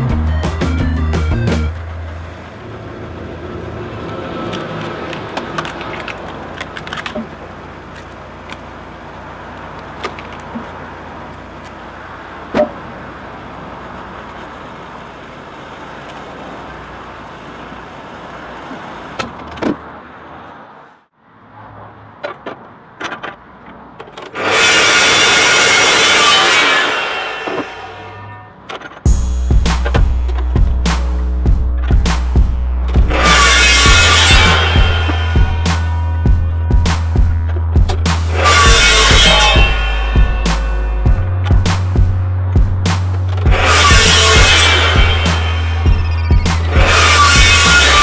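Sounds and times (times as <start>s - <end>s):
wood cracking: 4.0s - 8.7s
log splitter spinning: 24.3s - 48.0s
metal chop saw running: 24.4s - 28.2s, 33.1s - 36.2s, 38.3s - 41.2s, 43.5s - 48.0s.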